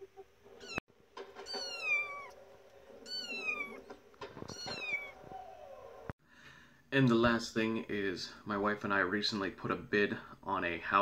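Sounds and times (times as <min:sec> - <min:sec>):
kitten meowing: 0:00.6 - 0:00.8, 0:01.4 - 0:02.4, 0:03.0 - 0:03.8, 0:04.5 - 0:05.2.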